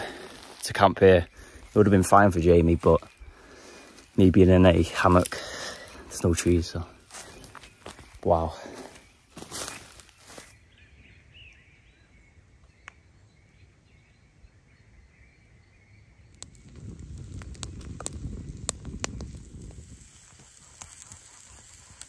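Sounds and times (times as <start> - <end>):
campfire crackling and popping: 0.0 - 8.9, 16.2 - 22.0.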